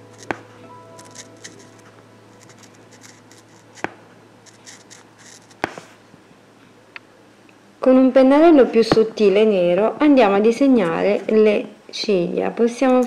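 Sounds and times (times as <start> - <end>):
marker scratching on fabric: 2.4 - 3.9, 4.5 - 6.0.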